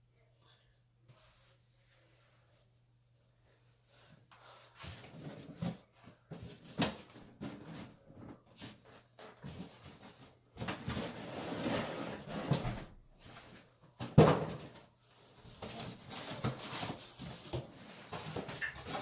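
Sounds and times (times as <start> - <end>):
cardboard rustling and scraping: 4.0 - 19.0.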